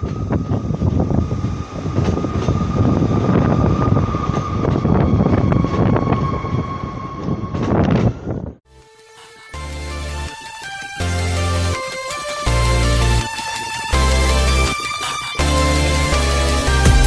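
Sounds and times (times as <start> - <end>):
diesel train engine and wheel rumble: 0.0 - 8.6
high steady whine: 9.6 - 17.0.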